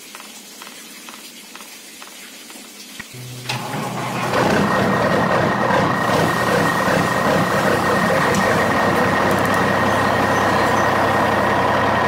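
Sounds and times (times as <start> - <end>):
motor starting click: 3.2 - 10.1
gear motor whine: 3.2 - 12.0.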